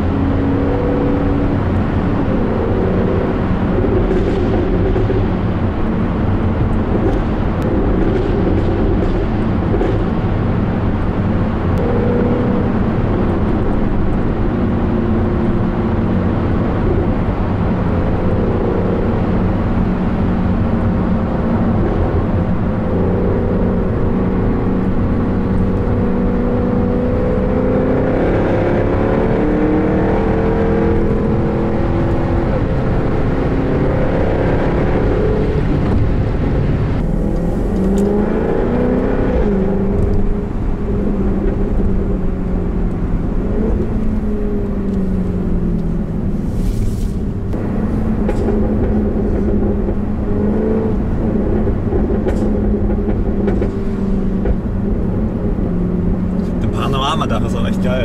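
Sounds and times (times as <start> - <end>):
car engine revving in cabin: 0.0 - 58.0.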